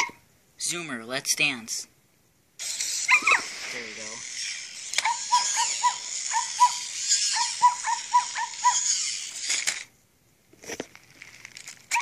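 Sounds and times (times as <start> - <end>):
whirring motors: 2.6 - 9.9.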